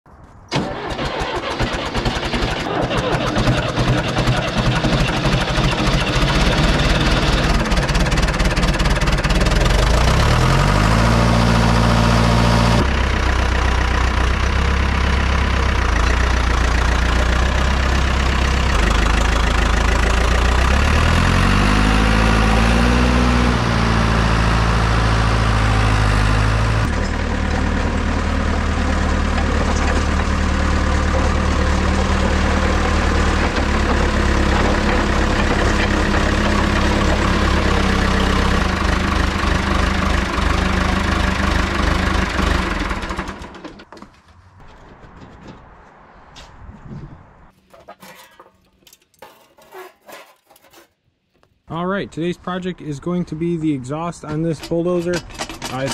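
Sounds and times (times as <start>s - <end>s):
bulldozer engine revving: 0.5s - 43.8s.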